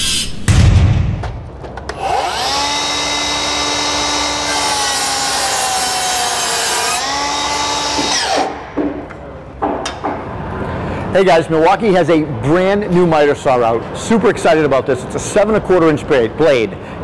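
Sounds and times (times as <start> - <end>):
miter saw motor whining: 1.9 - 8.6
saw cutting through wood: 2.0 - 8.6.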